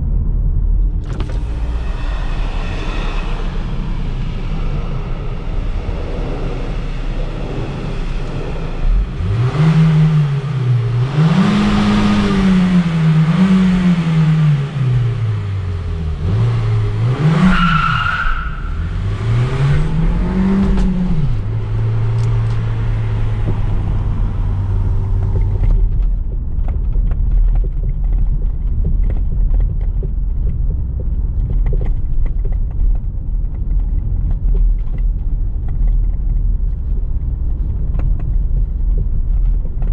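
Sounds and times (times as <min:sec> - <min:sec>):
dull low rumble: 0:00.0 - 0:39.9
car engine revving: 0:00.8 - 0:26.2.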